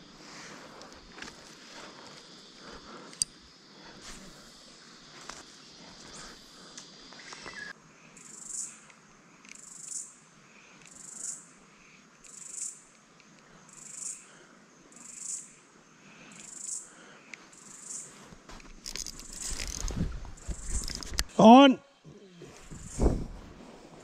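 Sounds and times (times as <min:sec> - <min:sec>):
insects calling: 0:00.0 - 0:24.0.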